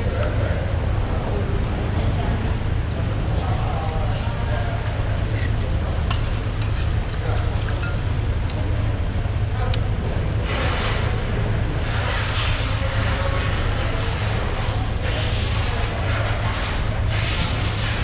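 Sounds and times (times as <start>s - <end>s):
low mechanical hum: 0.0s - 18.0s
knife scraping fish skin: 5.2s - 7.0s.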